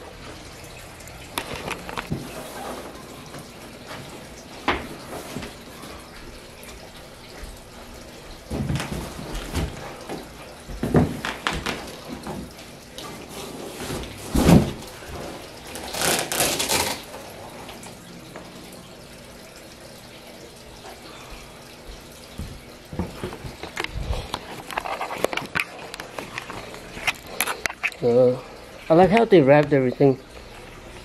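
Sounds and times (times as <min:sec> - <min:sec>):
cardboard scraping and rustling: 0:13.3 - 0:14.8
cardboard boxes thumping: 0:13.9 - 0:14.8.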